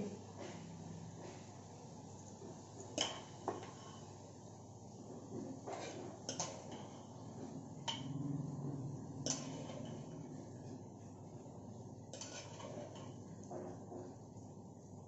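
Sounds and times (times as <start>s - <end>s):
metal spoon clinking on pots: 6.2s - 7.1s, 7.8s - 8.2s, 9.2s - 10.3s, 12.1s - 13.2s.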